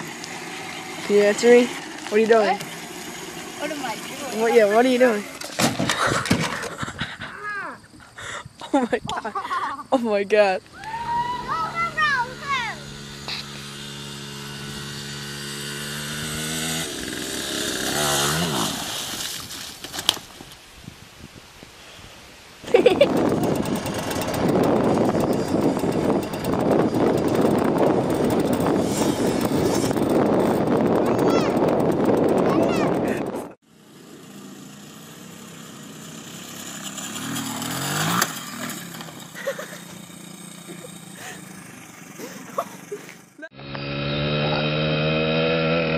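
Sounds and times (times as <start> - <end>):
dirt bike engine buzzing: 0.0 - 6.9, 10.7 - 19.6, 22.6 - 45.9
sharp knocks of bike falling: 5.4 - 6.8
sharp crack: 37.2 - 39.2.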